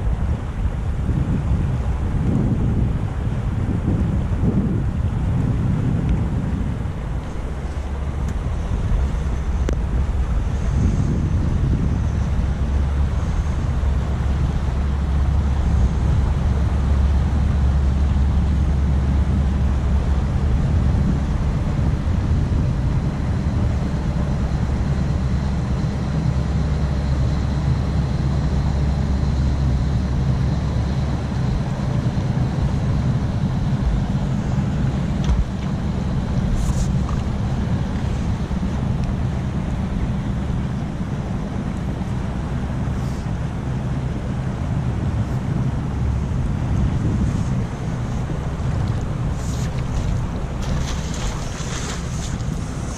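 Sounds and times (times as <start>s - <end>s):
barge diesel engine drone: 0.0s - 52.9s
wind buffeting microphone: 0.0s - 52.9s.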